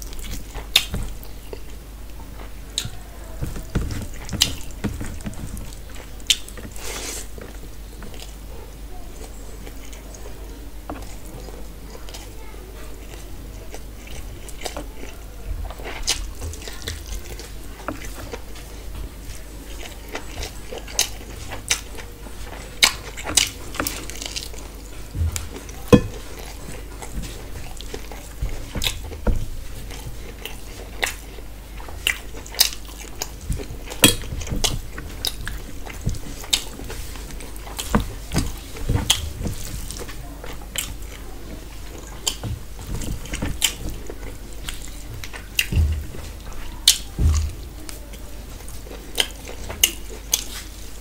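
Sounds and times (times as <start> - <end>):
mouth smacking and chewing: 3.7 - 8.4, 48.5 - 50.8
steady low hum: 20.4 - 49.1.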